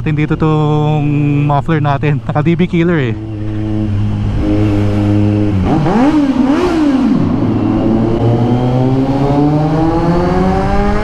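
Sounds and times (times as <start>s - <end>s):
motorcycle engine revving and accelerating: 3.2s - 11.0s.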